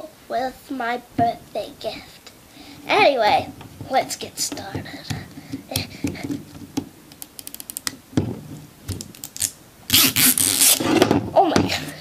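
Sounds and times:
toy packaging crackling: 7.2 - 7.9.

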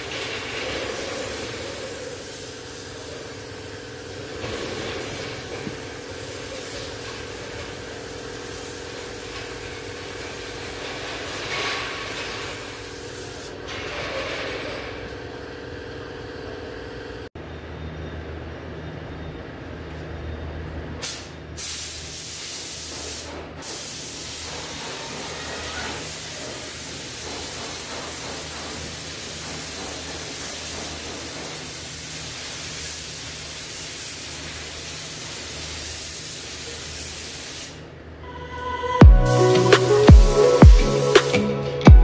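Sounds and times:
paint spray gun hissing: 0.0 - 13.6, 21.0 - 37.8, 39.2 - 41.6.

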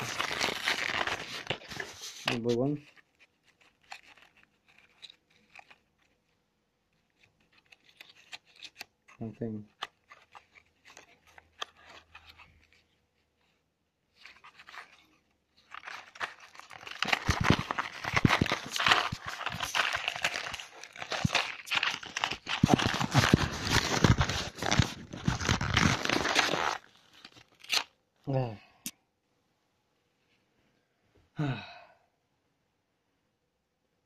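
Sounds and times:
cardboard box tearing and crumpling: 0.0 - 2.4, 15.6 - 27.9.

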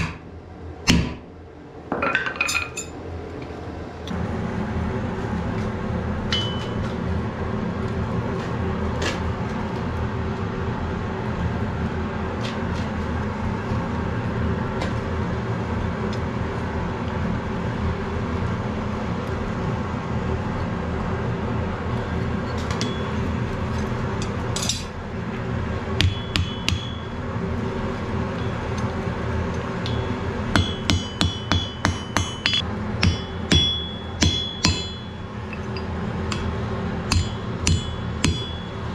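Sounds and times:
forge blower droning: 0.0 - 2.2, 2.9 - 38.9
hammer ringing on anvil: 6.3 - 6.8, 22.7 - 23.2, 26.0 - 27.2, 29.8 - 36.5, 37.1 - 38.9.

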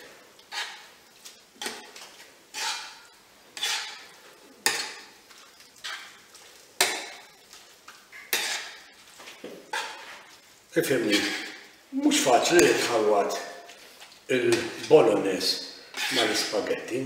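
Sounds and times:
metal tongs scraping frying pan: 2.5 - 5.1, 8.1 - 8.9, 11.0 - 11.7, 15.9 - 16.6.

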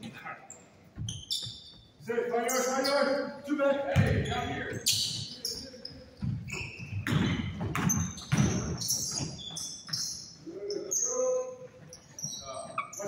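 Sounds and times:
shoe squeaks: 0.4 - 3.4, 4.0 - 13.0
basketball bouncing: 3.9 - 5.2, 6.2 - 10.1.

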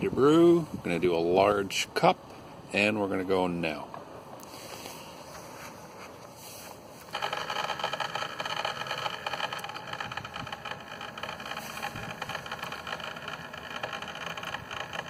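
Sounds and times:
coffee maker water pump running: 7.1 - 15.0.

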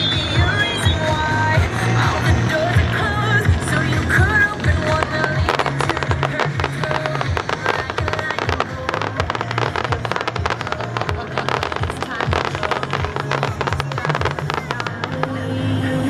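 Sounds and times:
fireworks crackling and popping: 0.0 - 15.9
music with bass line: 0.0 - 16.0.

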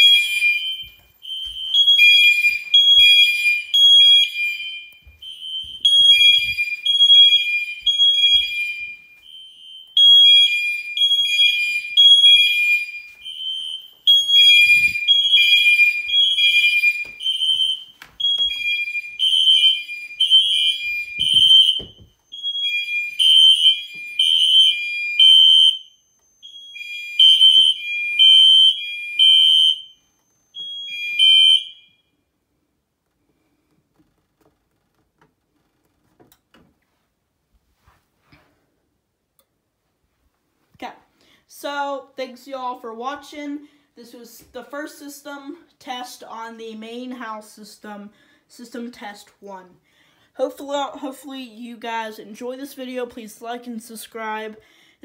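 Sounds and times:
fire alarm beeping: 0.0 - 32.3.

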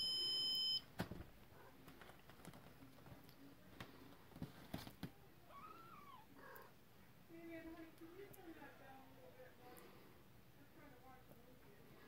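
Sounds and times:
kittens padding on bedding: 1.0 - 5.3.

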